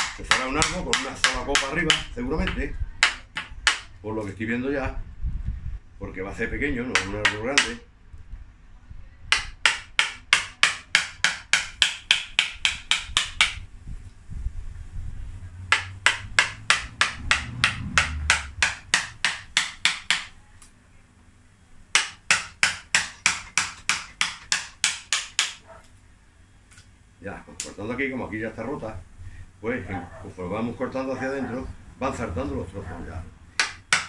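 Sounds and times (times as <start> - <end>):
mallet striking gouge in wood: 0.0 - 3.9, 6.9 - 7.8, 9.3 - 13.6, 15.7 - 20.3, 21.9 - 25.6, 33.6 - 34.0.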